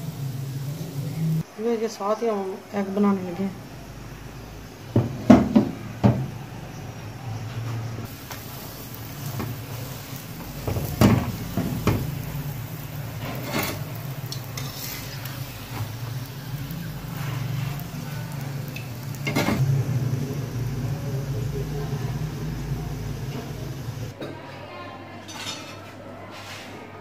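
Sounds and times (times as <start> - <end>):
flatbread sizzling in oil: 8.0 - 24.1
spatula clacking on griddle: 13.2 - 15.4
steady low hum: 15.8 - 24.1.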